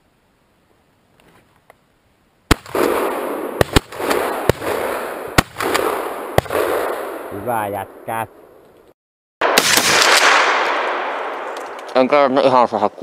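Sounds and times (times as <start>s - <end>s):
shotgun shots: 2.5s - 7.3s, 9.4s - 12.1s.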